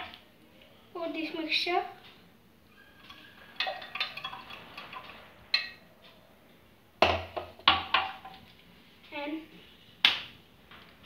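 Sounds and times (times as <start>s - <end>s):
glassware clinking: 2.8s - 5.8s.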